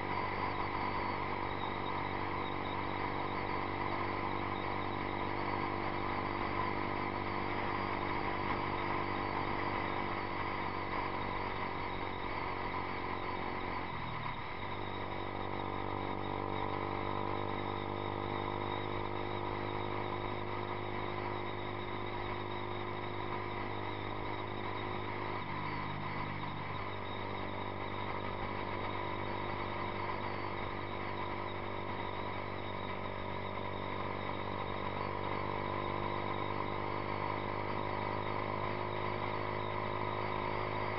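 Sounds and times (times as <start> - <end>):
motorcycle engine riding: 0.0 - 40.9.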